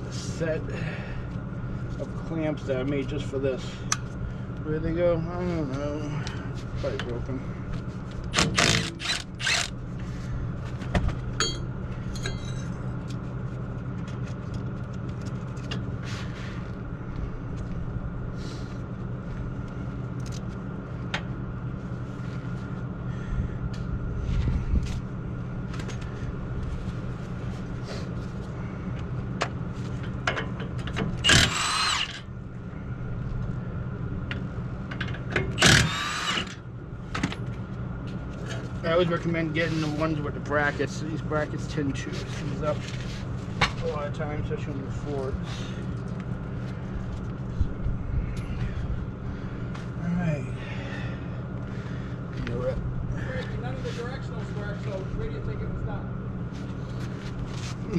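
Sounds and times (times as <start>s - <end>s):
steady low hum: 0.0s - 57.9s
cordless power tool whirring: 8.4s - 9.8s, 31.2s - 32.2s, 35.6s - 36.6s.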